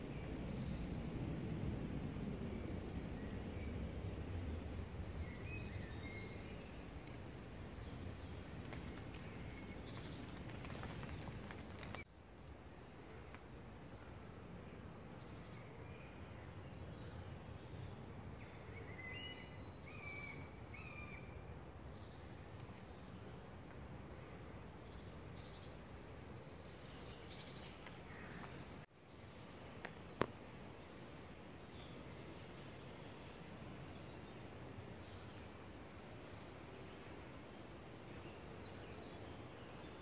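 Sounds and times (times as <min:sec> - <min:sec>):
steady low background noise: 0:00.0 - 0:40.0
small birds chirping: 0:02.5 - 0:31.1.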